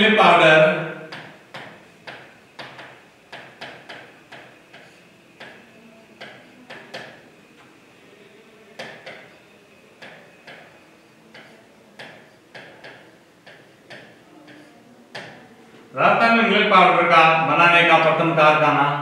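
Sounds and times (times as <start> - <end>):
marker pen tapping on board: 1.1 - 5.6, 6.2 - 7.2, 8.8 - 9.4, 10.0 - 10.7, 11.3 - 15.4.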